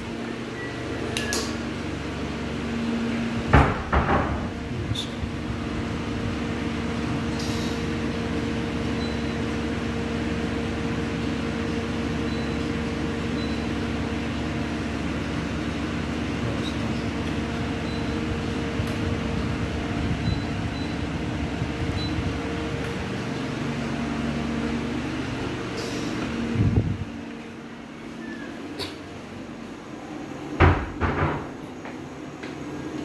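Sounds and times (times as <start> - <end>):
steady machine hum: 0.0 - 33.0
sharp knocks: 3.5 - 4.6, 30.6 - 31.6.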